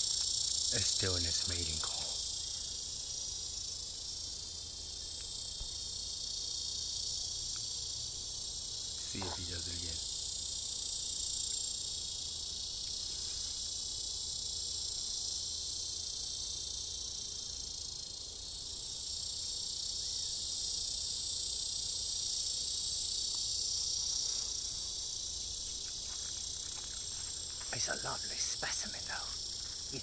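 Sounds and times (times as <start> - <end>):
cicada buzzing: 0.0 - 30.0.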